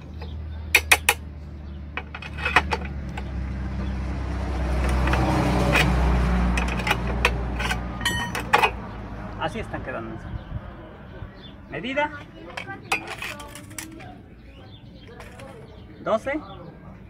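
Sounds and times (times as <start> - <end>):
steel rod clinking on metal: 4.8 - 8.8, 12.5 - 14.0.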